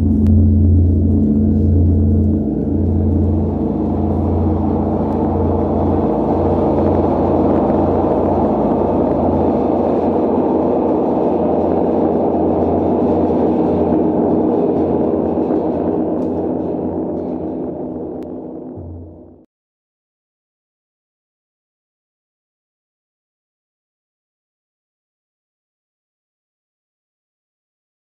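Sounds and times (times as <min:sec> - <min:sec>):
gong ringing: 0:00.0 - 0:19.4.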